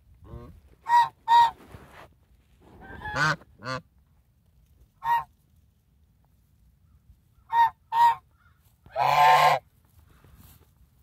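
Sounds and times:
goose honking: 0:00.3 - 0:01.6, 0:02.8 - 0:03.9, 0:07.5 - 0:08.2, 0:08.9 - 0:09.6.

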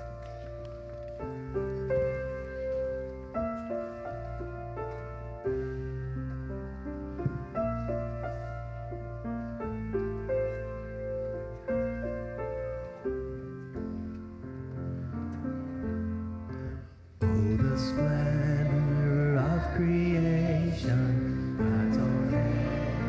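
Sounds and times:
church keyboard playing: 0:00.0 - 0:23.0
people singing a hymn: 0:17.4 - 0:23.0.

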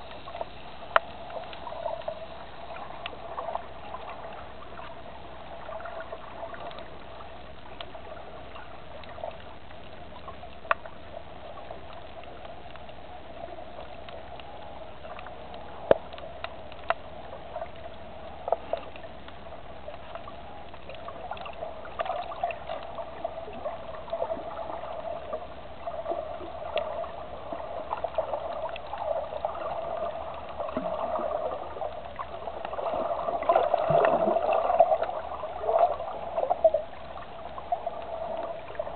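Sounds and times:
underwater water hiss: 0:00.0 - 0:07.3.

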